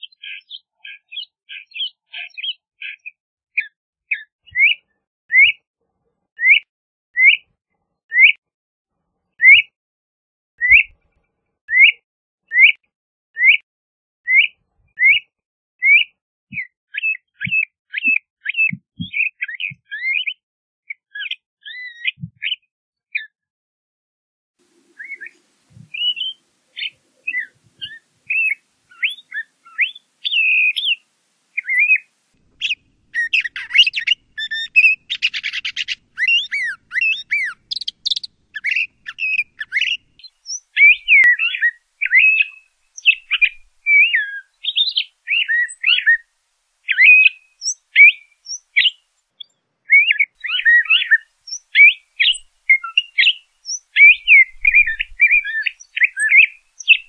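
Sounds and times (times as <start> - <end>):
bird singing whistled notes: 0.0 - 5.6, 6.4 - 7.4, 8.1 - 8.4, 9.4 - 9.7, 10.6 - 11.0, 11.7 - 12.8, 13.4 - 13.6, 14.3 - 22.6, 24.9 - 57.0
harsh buzzy bird phrase: 31.6 - 37.6.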